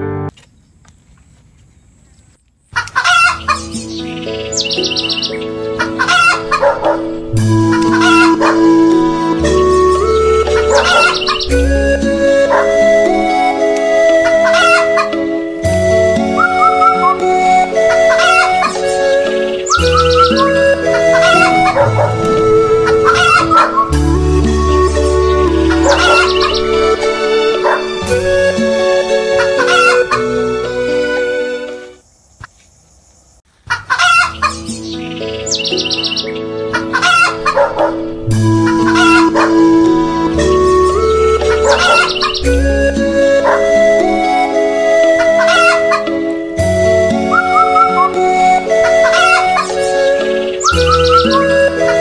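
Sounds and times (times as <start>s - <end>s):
chickens clucking and crowing: 2.8s - 11.6s, 14.2s - 15.3s, 16.2s - 30.6s, 33.7s - 44.2s, 44.8s - 46.2s, 47.2s - 52.0s
music of long held notes: 3.6s - 32.0s, 34.6s - 52.0s.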